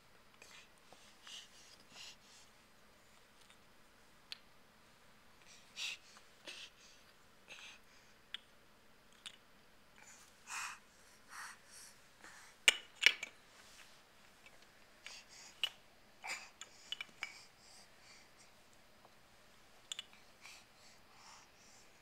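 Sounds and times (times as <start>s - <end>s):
soft scrapes and rustles: 13.4s - 14.6s.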